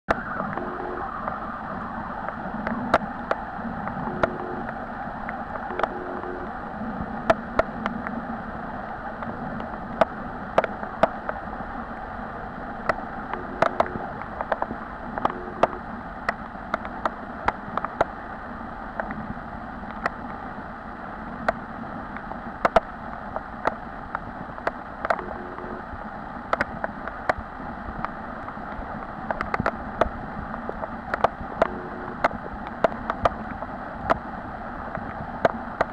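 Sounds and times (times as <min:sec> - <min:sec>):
muffled underwater rush: 0:00.1 - 0:35.9
sharp underwater clicks: 0:02.2 - 0:06.6, 0:09.2 - 0:11.5, 0:12.8 - 0:18.2, 0:19.9 - 0:20.4, 0:21.4 - 0:25.9, 0:26.5 - 0:34.3, 0:34.9 - 0:35.9.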